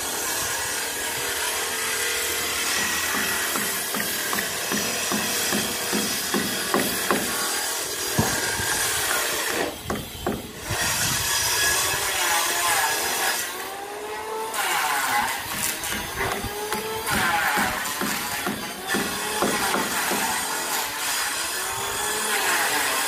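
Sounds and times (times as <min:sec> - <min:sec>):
woodworking machine cutting boards: 0:00.0 - 0:23.0.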